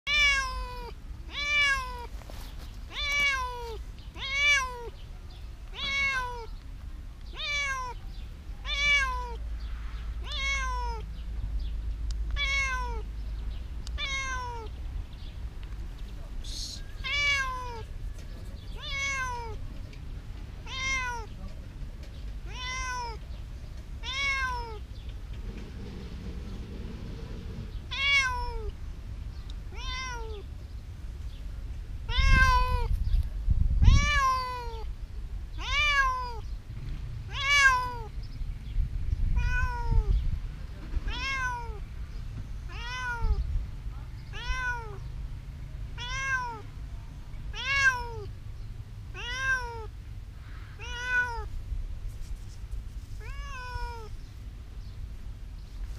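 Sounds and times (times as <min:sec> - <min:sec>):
cat meowing: 0:00.1 - 0:02.1, 0:02.9 - 0:05.0, 0:05.7 - 0:06.5, 0:07.3 - 0:08.0, 0:08.6 - 0:09.4, 0:10.2 - 0:11.0, 0:12.4 - 0:13.1, 0:14.0 - 0:14.8, 0:17.0 - 0:17.9, 0:18.8 - 0:19.6, 0:20.6 - 0:21.4, 0:22.4 - 0:23.2, 0:24.0 - 0:24.9, 0:27.9 - 0:28.8, 0:29.7 - 0:30.5, 0:32.1 - 0:32.9, 0:33.8 - 0:34.9, 0:35.6 - 0:36.4, 0:37.3 - 0:38.1, 0:39.4 - 0:40.2, 0:41.0 - 0:41.8, 0:42.7 - 0:43.4, 0:44.3 - 0:45.0, 0:46.0 - 0:46.7, 0:47.5 - 0:48.3, 0:49.1 - 0:49.9, 0:50.8 - 0:51.5, 0:53.2 - 0:54.2.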